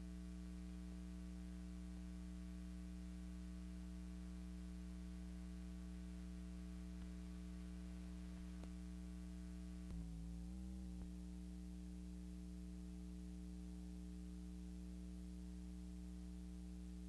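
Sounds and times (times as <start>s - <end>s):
electrical hum: 0.0s - 17.0s
faint click: 8.6s - 8.8s.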